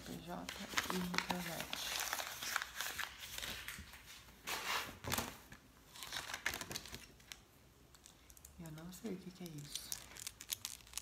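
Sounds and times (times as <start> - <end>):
paper and plastic folder rustling: 0.0 - 7.4.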